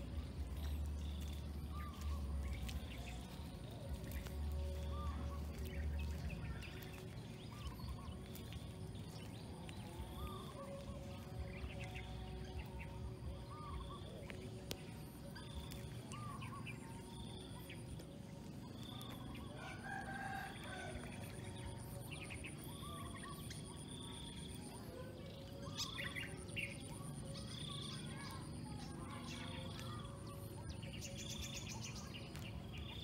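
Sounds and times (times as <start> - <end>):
bird chirps: 0.0 - 21.0
rooster crowing: 19.6 - 21.3.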